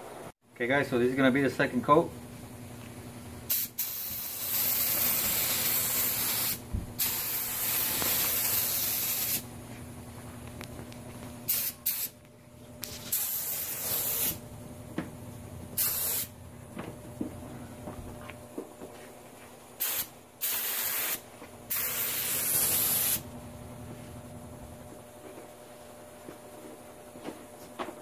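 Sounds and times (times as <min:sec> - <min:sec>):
paint spray gun hissing: 0:03.5 - 0:09.4, 0:11.5 - 0:12.2, 0:13.0 - 0:14.4, 0:15.8 - 0:16.3, 0:19.8 - 0:23.2.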